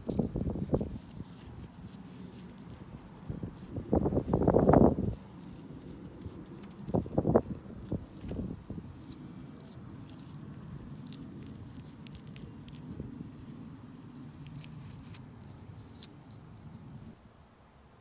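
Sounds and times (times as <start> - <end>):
fingers scraping in soil: 0.0 - 17.3.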